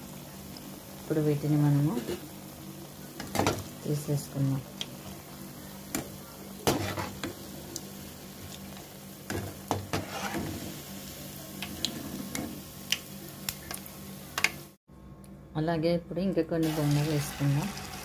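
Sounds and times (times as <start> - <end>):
oil sizzling while deep-frying: 0.0 - 14.8, 16.6 - 18.0
metal spoon scraping a pan: 6.6 - 7.3, 9.7 - 10.8.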